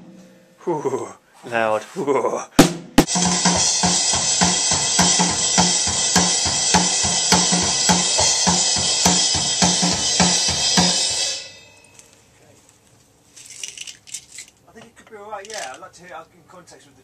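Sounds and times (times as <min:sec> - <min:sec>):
drum kit steady beat: 0:00.0 - 0:00.5, 0:02.6 - 0:12.0.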